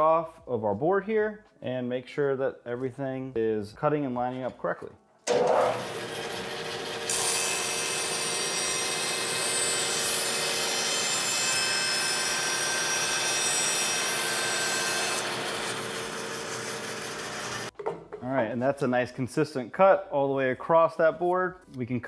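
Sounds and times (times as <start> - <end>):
bandsaw running hum: 5.3 - 17.7.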